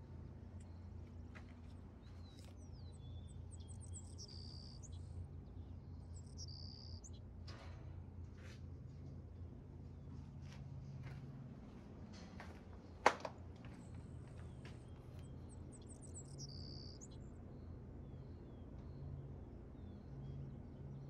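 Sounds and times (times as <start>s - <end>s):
birds chirping: 0.0s - 7.3s, 12.6s - 21.0s
faint low hum: 0.0s - 21.0s.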